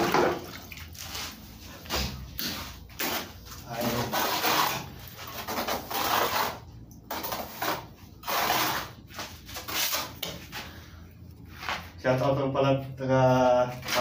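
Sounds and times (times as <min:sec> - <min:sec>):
trowel scraping plaster on wall: 0:02.4 - 0:10.3.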